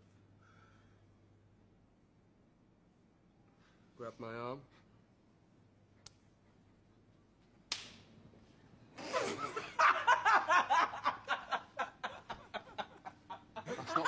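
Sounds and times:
young man laughing: 9.0 - 14.0.

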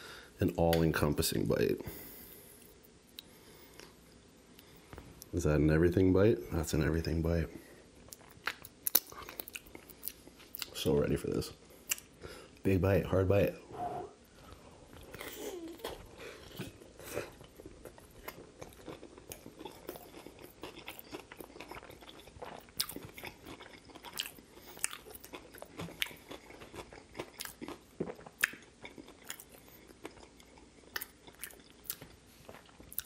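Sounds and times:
person chewing crunchy food: 8.0 - 10.8, 14.4 - 33.0.

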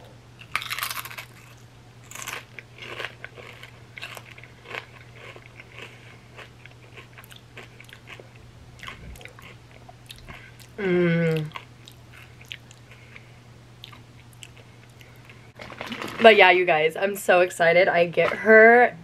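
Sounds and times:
chip crunching while chewed: 0.4 - 10.8.

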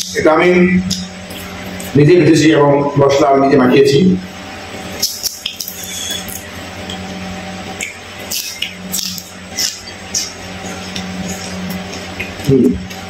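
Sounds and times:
low hum: 0.0 - 13.0
wet chewing and smacking: 4.9 - 7.1, 7.7 - 13.0.

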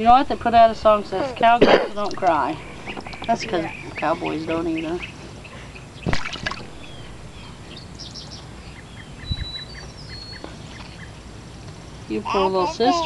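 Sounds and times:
birds chirping: 0.0 - 13.0
splash in shallow pool: 6.1 - 6.7.

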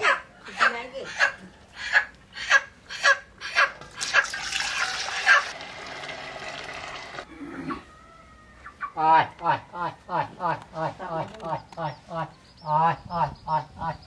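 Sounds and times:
water splashing into metal basin: 3.8 - 7.2.

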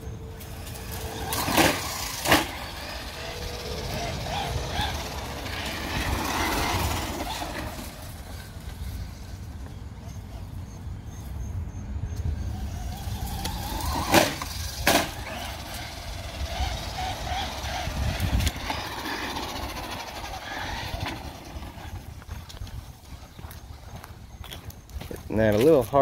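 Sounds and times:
electric motor whining: 0.0 - 10.3, 12.2 - 22.3.

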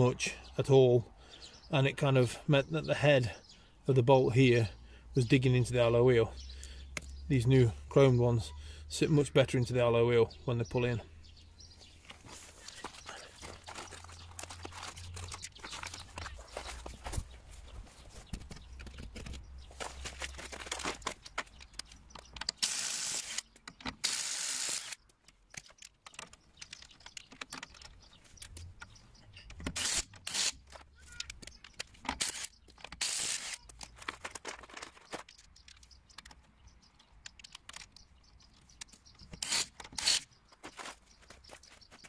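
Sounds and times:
impact wrench bursts: 22.6 - 25.0, 29.7 - 30.6, 32.2 - 33.6, 39.4 - 40.3.

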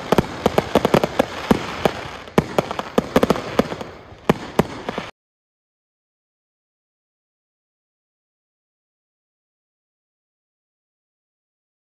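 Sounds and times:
crackling hiss: 0.0 - 5.1
fireworks cracking and banging: 0.0 - 5.2.

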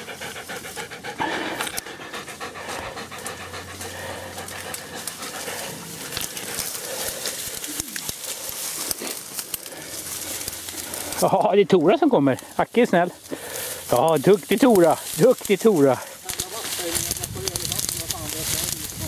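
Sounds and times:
dog panting hard: 0.0 - 7.8.

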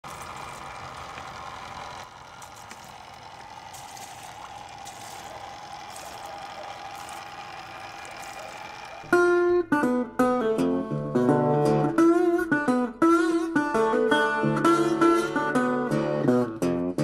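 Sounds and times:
water splashing onto water wheel: 0.0 - 9.1.

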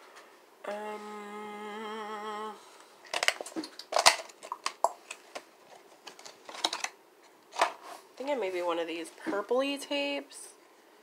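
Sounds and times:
person humming: 0.6 - 2.8
small plastic items clicking and rattling: 3.1 - 5.4, 6.0 - 7.0.

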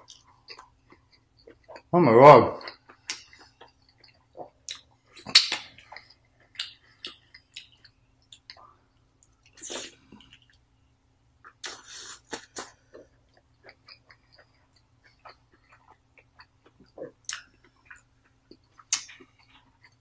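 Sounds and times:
wet mouth eating sounds: 2.6 - 8.6, 9.4 - 10.6, 11.4 - 20.0.

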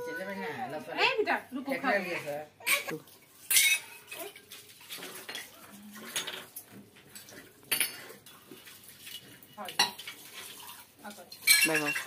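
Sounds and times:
metal spoon clinking steel cup: 11.3 - 12.0.

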